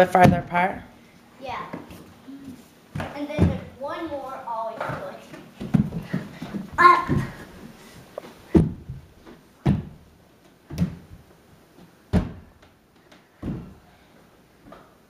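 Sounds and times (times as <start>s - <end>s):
feet landing on hardwood floor: 2.9s - 3.7s, 4.9s - 11.3s, 12.1s - 12.7s, 13.4s - 13.8s.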